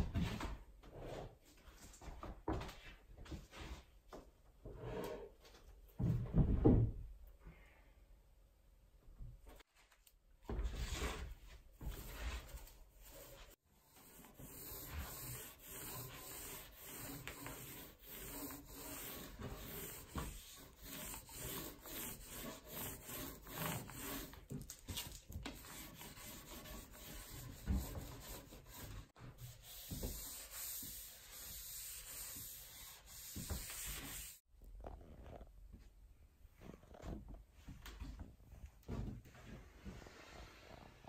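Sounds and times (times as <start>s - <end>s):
paint roller rubbing on wood: 11.8s - 24.5s, 25.5s - 34.4s.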